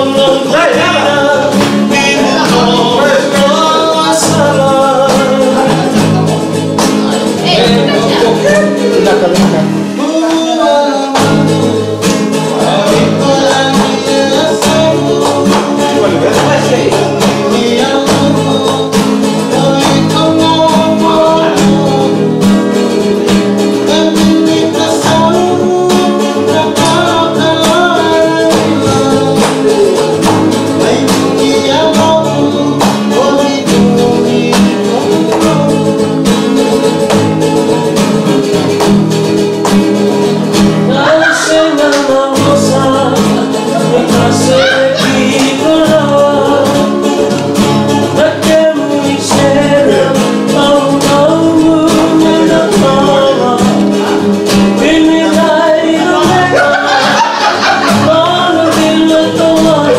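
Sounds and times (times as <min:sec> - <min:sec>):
men singing together: 0:00.0 - 0:38.8, 0:40.7 - 0:59.9
strummed acoustic guitar: 0:00.0 - 0:59.9.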